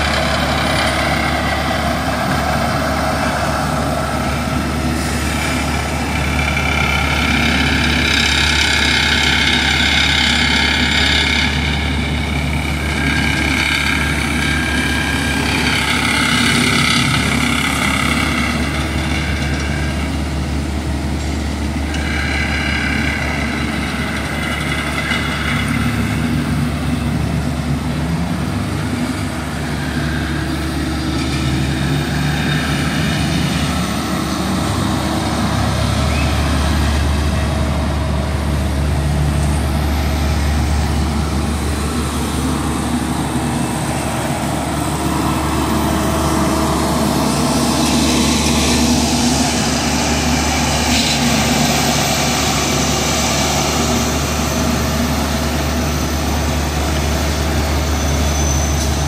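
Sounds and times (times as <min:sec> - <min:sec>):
asphalt paver diesel hum: 0:00.0 - 0:59.0
machine whine: 0:00.0 - 0:59.0.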